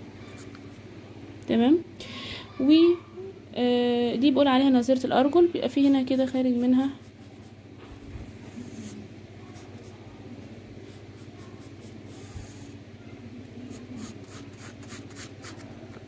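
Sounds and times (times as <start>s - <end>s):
pencil scratching on paper: 13.7s - 15.8s.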